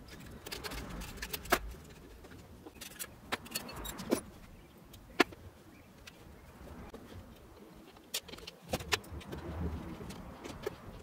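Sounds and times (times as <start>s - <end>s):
metal and plastic parts clinking: 0.0s - 4.3s.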